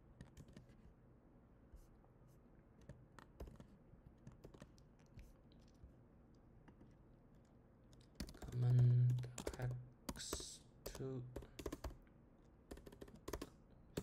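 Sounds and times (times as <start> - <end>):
typing on computer keyboard: 0.2 - 0.8, 2.8 - 4.8, 7.9 - 12.0, 12.7 - 14.0.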